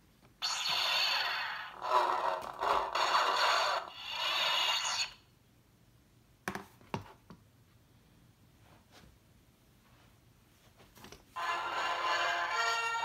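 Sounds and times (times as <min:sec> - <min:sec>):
toy lightsaber buzzing: 0:00.4 - 0:05.3.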